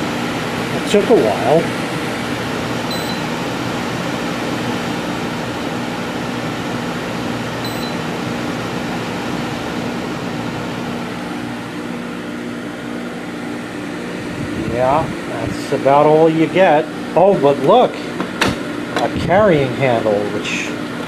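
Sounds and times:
dehumidifier blower humming: 0.0 - 21.0
short high beep: 2.9 - 3.3, 7.7 - 8.0.

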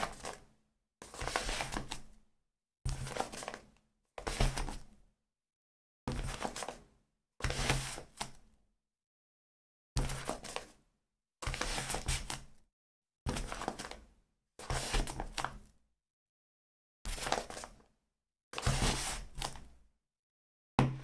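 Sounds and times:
book thudding: 20.8 - 21.0.

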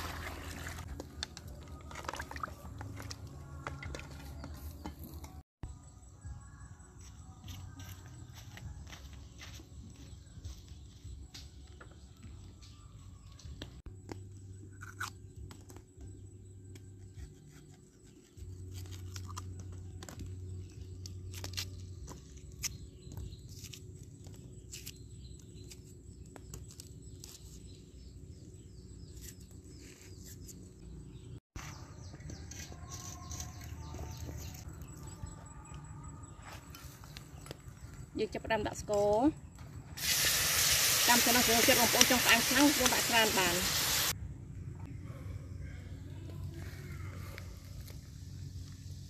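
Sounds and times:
cleaver cutting bamboo: 17.0 - 19.4, 32.3 - 34.6
low hum: 39.5 - 49.0.

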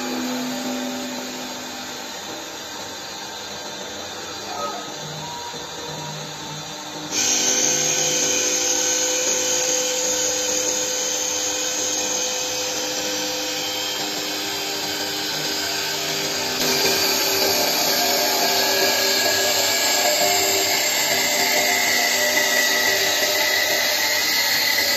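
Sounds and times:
lathe whine: 0.0 - 24.9
cutters shaving wood hiss: 7.1 - 24.9.

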